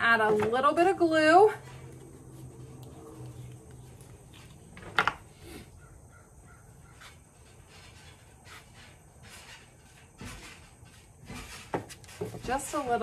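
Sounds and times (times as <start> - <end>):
faint knocks and rustles: 6.9 - 13.0.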